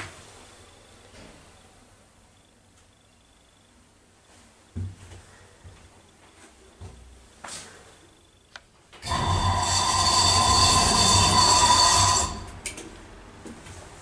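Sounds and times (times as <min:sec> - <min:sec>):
elevator doors whining open: 0:09.0 - 0:12.7.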